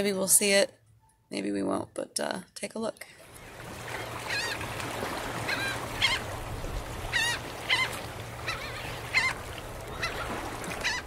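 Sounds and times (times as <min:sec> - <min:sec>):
birds calling: 0:03.4 - 0:11.0.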